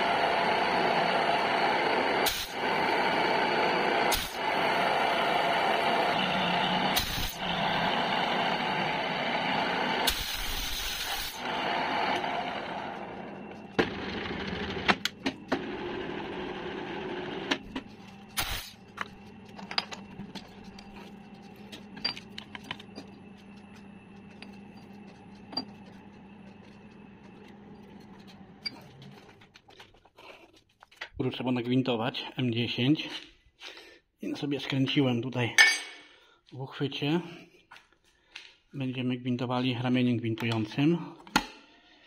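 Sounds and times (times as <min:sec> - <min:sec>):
milling machine cutting steel: 0:00.0 - 0:17.6
machine hum: 0:00.0 - 0:30.4.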